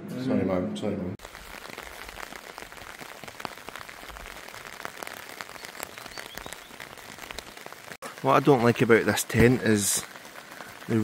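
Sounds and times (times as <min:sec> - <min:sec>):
rain on a tent: 0:01.2 - 0:11.0.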